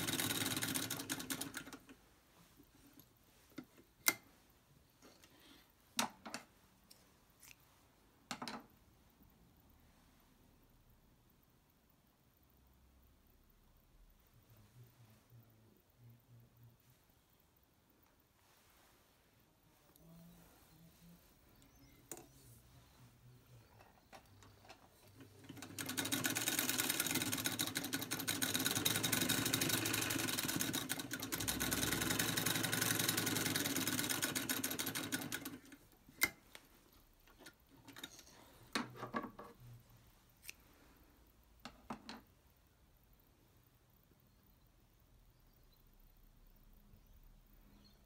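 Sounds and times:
sewing machine stitching: 0.0s - 1.9s, 24.4s - 35.8s.

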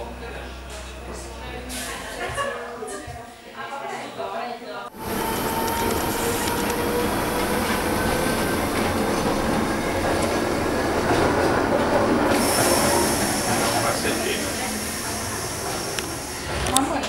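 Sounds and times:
train rolling rumble: 4.9s - 17.0s.

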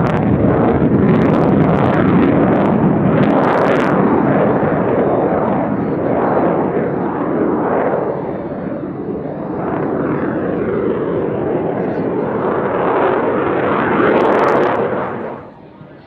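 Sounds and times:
jet engine roaring overhead: 0.0s - 16.0s.

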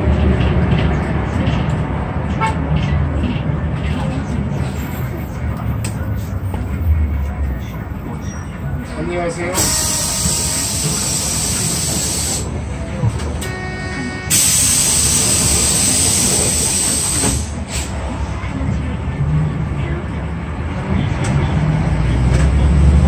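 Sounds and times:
low engine rumble: 0.0s - 23.0s
pneumatic air hiss: 9.6s - 12.5s, 14.3s - 18.0s.

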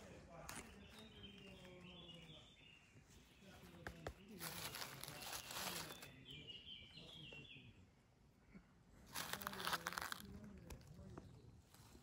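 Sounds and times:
bird chirping: 0.5s - 8.0s
leaf litter rustling and crackling: 4.4s - 6.2s, 9.1s - 10.9s.

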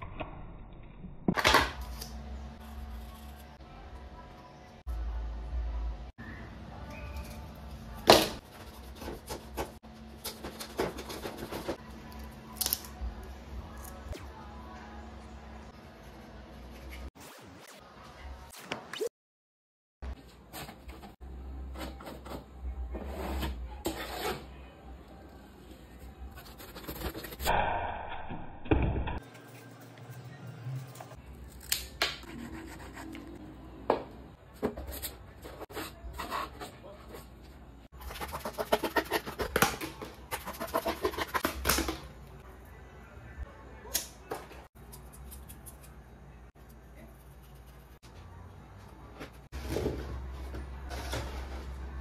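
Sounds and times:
scissors cutting cardboard: 38.0s - 42.0s
cardboard rustling and scraping: 49.4s - 52.0s.

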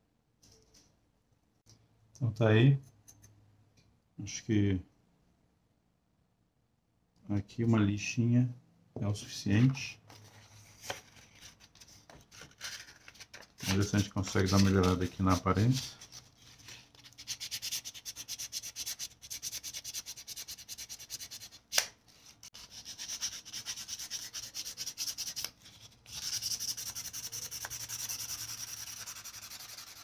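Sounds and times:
sandpaper scratching metal blade: 17.1s - 21.6s, 22.4s - 30.0s.

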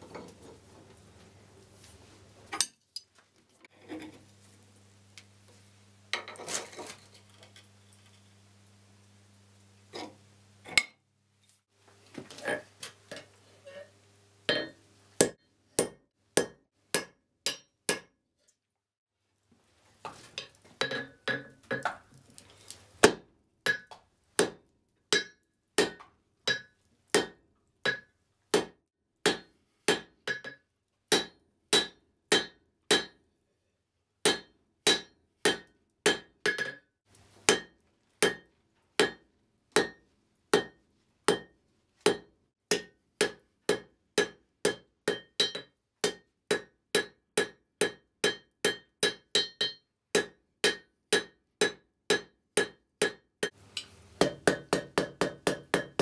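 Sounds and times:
hammer striking steel on anvil: 14.5s - 18.1s, 23.0s - 33.2s, 34.2s - 36.8s, 37.5s - 39.2s, 39.8s - 40.0s, 40.6s - 41.5s, 42.1s - 56.0s.

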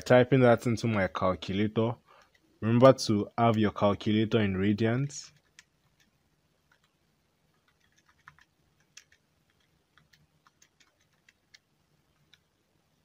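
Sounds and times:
calculator buttons clicking: 7.7s - 11.6s.

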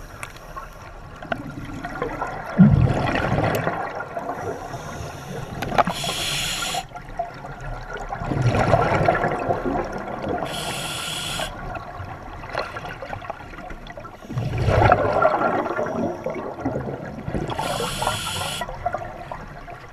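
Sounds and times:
exhaled bubbles rushing: 1.2s - 4.7s, 5.3s - 10.9s, 11.5s - 19.9s
scuba regulator hissing inhalations: 4.4s - 6.9s, 10.5s - 11.6s, 17.5s - 18.7s.

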